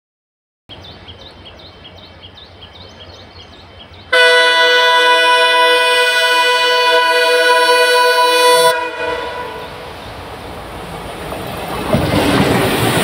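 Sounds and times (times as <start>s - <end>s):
locomotive horn blast: 4.1s - 9.9s.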